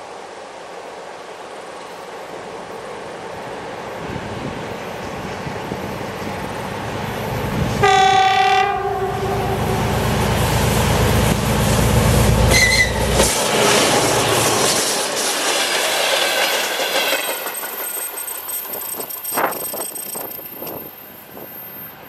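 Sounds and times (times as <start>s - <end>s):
locomotive horn: 7.8s - 10.1s, 12.4s - 13.2s
train wheels clattering on rail joints: 12.5s - 21.0s.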